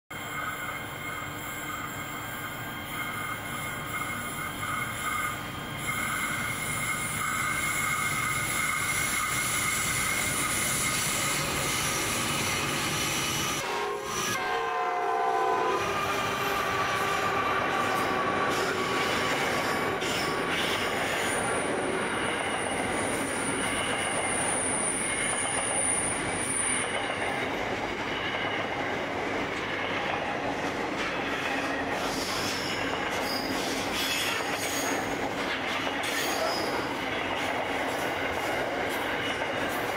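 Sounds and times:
train wagons rolling on rails: 0.1s - 14.4s, 15.8s - 39.9s
high wheel squeal: 0.2s - 14.6s, 15.8s - 27.5s, 31.3s - 35.2s, 36.0s - 36.9s
train horn: 13.6s - 20.1s.

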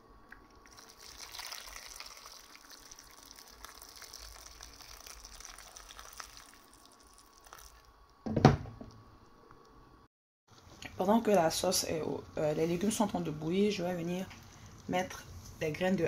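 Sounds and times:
water pouring and splashing: 0.6s - 7.9s.

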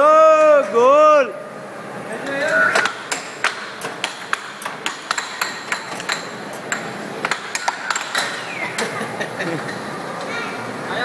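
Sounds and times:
air hockey puck clacking: 2.7s - 9.0s.

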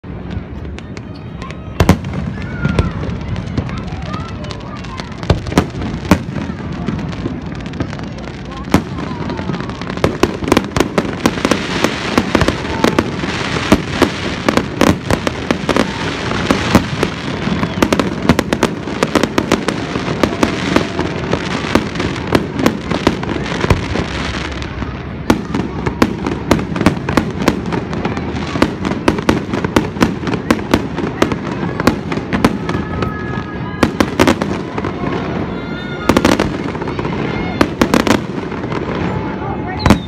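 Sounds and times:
firework bangs: 0.0s - 40.0s
firework crackle: 0.0s - 40.0s.

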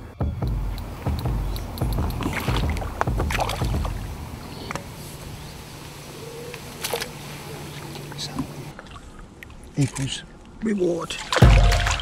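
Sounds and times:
fish splashing in shallow water: 1.9s - 5.4s, 6.2s - 7.2s, 11.2s - 12.0s.

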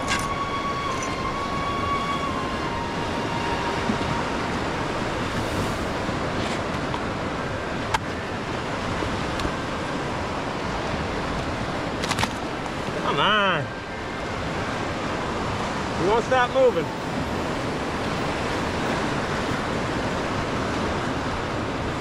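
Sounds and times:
wind on microphone: 0.0s - 13.0s
waves washing against pier: 0.0s - 22.0s.

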